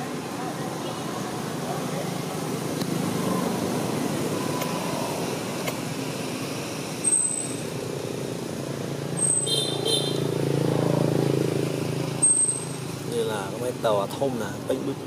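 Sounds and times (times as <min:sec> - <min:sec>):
thin high chirps: 0:07.0 - 0:07.6, 0:12.2 - 0:12.8.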